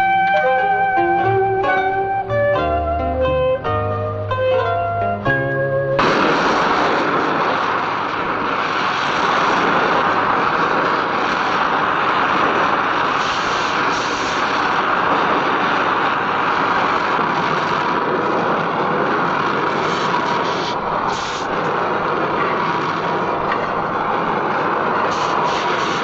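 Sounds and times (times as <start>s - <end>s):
welding torch flame hissing: 6.0s - 26.0s.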